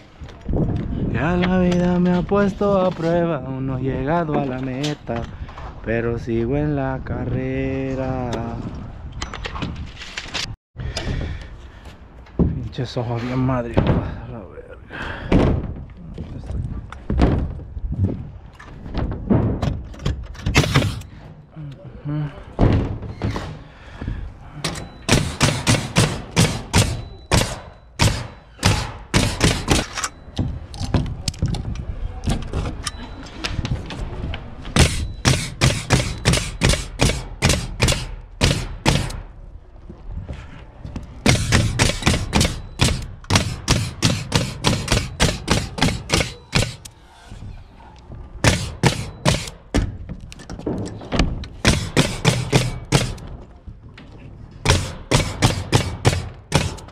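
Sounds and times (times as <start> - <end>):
nail gun firing into wood: 20.4 - 21.0, 24.7 - 30.1, 34.8 - 39.2, 41.2 - 46.9, 48.4 - 49.6, 51.6 - 53.3, 54.7 - 56.9.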